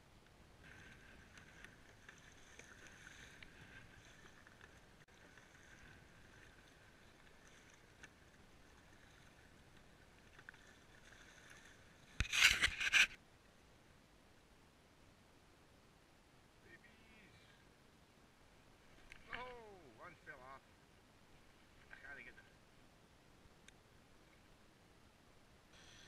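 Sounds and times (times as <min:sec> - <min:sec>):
water lapping along kayak hull: 0:00.0 - 0:16.6, 0:17.2 - 0:26.0
paddle stroke splash: 0:00.4 - 0:13.2, 0:18.8 - 0:20.3.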